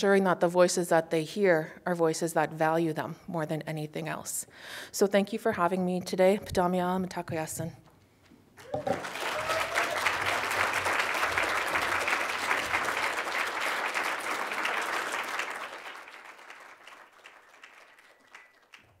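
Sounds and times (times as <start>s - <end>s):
audience applauding: 8.6s - 19.0s.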